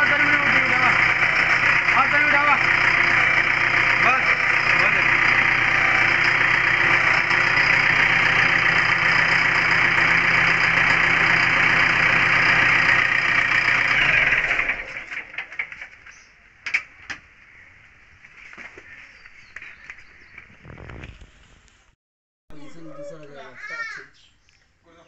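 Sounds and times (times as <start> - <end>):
diesel engine idling: 0.0 - 16.6.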